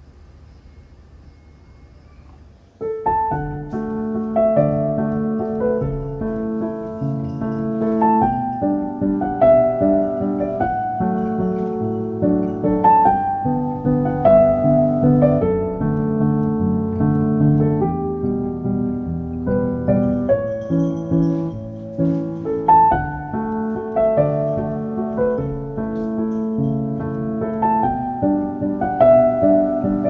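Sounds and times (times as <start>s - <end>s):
faint low hum: 0.0s - 6.4s
piano music: 2.8s - 30.0s.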